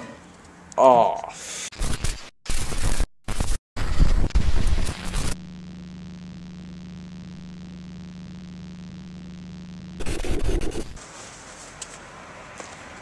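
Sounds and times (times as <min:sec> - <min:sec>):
hissing static bursts: 0:01.7 - 0:11.0
low electrical hum: 0:04.8 - 0:11.0.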